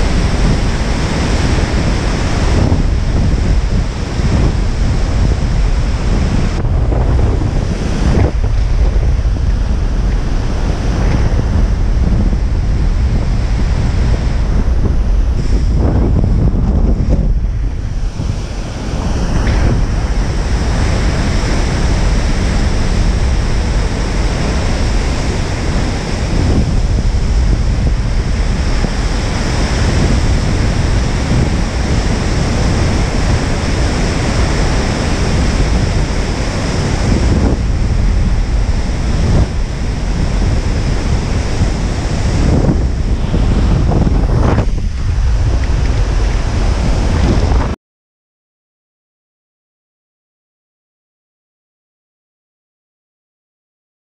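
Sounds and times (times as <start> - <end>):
breaking surf: 0.0 - 47.8
wind buffeting microphone: 0.0 - 47.8.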